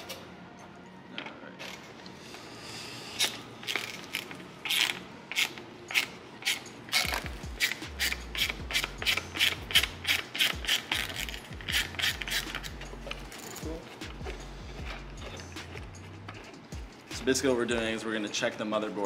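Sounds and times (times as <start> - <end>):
screwdriver scraping on screw: 3.2 - 17.0.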